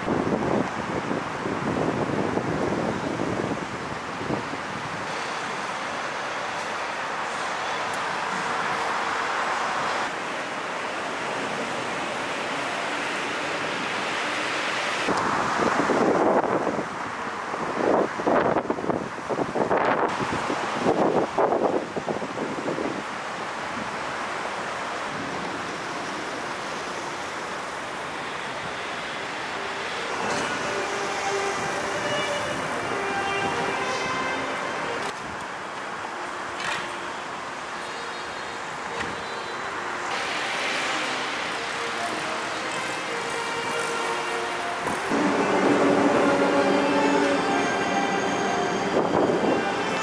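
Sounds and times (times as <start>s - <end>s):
stream water rushing: 0.0s - 50.0s
subway train rumbling overhead: 0.0s - 50.0s.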